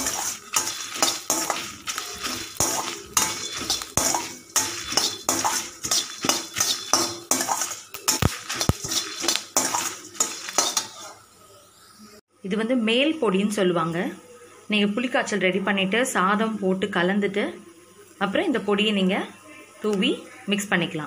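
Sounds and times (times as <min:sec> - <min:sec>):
ladle scraping metal pan: 0:00.0 - 0:11.2.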